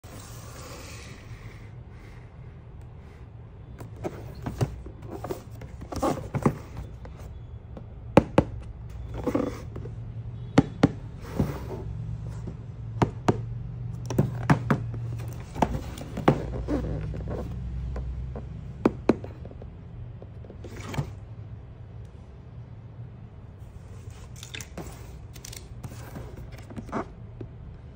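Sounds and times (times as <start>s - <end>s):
cardboard sliding rustles: 3.8s - 7.3s
fingers tapping cardboard: 8.1s - 9.9s, 10.6s - 11.6s, 12.4s - 20.4s.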